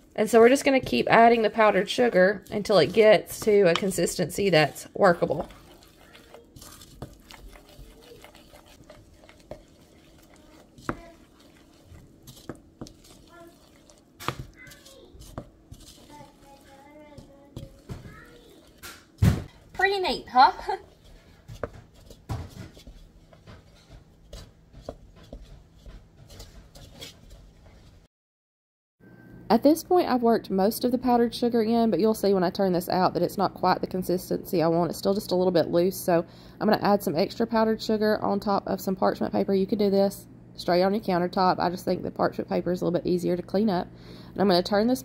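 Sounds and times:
spoon scraping wet food: 0.3s - 19.0s, 19.7s - 27.6s.

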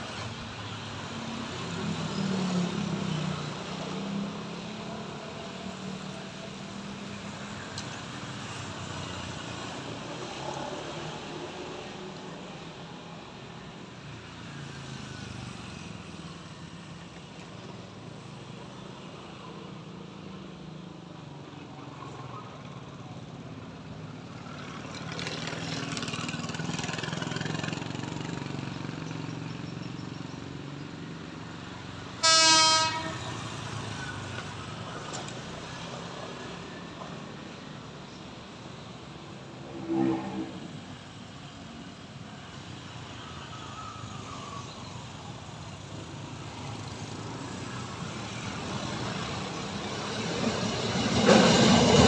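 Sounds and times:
urban background rumble: 0.0s - 52.0s
train horn blast: 32.2s - 33.5s.

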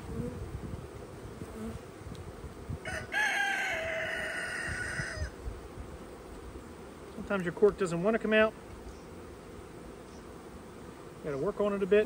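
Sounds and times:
honeybees buzzing: 0.0s - 12.0s
rooster crowing: 2.8s - 5.4s.

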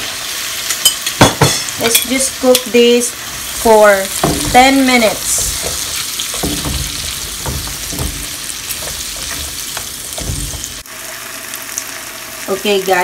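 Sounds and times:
apple slices sizzling in a pan: 0.0s - 13.0s
tongs knocking and scraping a pan: 0.7s - 10.8s.

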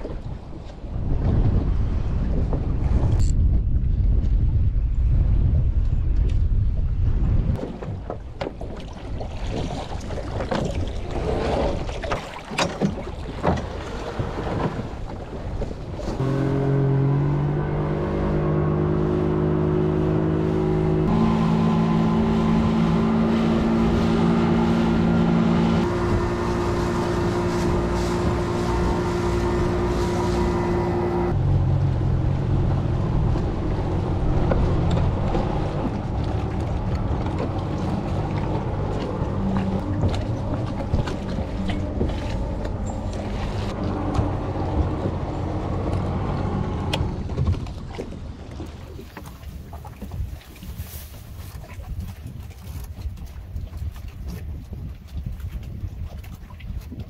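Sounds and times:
water noise: 0.0s - 57.0s
wind: 0.0s - 57.0s
outboard motor running: 16.0s - 57.0s.

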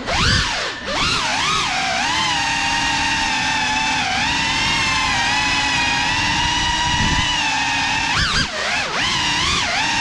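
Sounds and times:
drone propellers whining: 0.0s - 10.0s.

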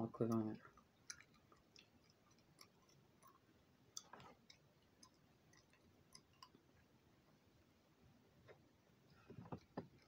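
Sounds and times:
gum chewing clicks: 0.3s - 6.6s.

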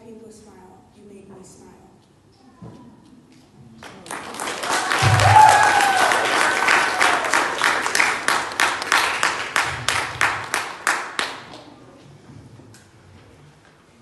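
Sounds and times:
audience applauding: 3.8s - 11.7s.

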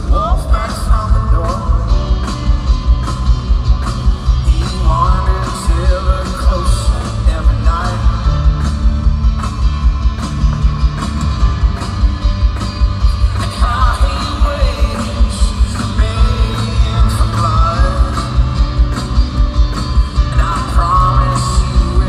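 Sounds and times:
man singing: 0.0s - 2.4s, 4.2s - 8.7s, 13.1s - 19.0s, 20.0s - 22.0s
electric guitar: 0.0s - 22.0s
fast drum beat: 0.0s - 22.0s.

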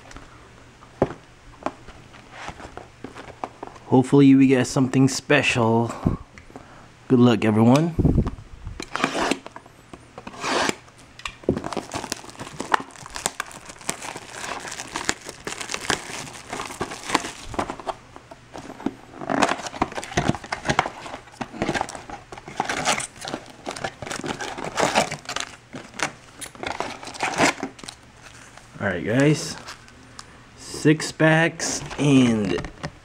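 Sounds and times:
plastic shrink wrap crinkling and tearing: 11.6s - 18.0s, 18.6s - 30.3s
foil packs rustling: 11.6s - 29.9s.

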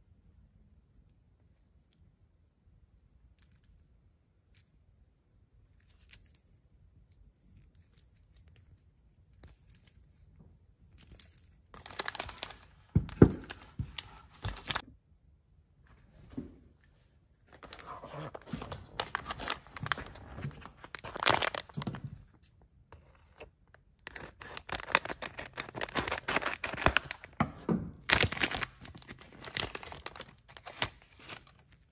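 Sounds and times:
plastic packaging crinkling: 11.7s - 14.8s, 17.5s - 22.4s, 24.0s - 27.4s, 28.0s - 31.9s.

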